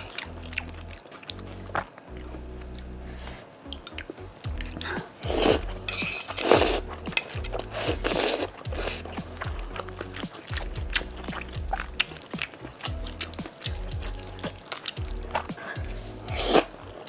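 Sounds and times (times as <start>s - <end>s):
chewing: 0.0s - 2.9s, 3.7s - 17.0s
soft background music: 0.0s - 17.0s
person slurping noodles: 4.8s - 5.8s, 6.4s - 7.0s, 7.6s - 9.4s, 15.3s - 16.9s.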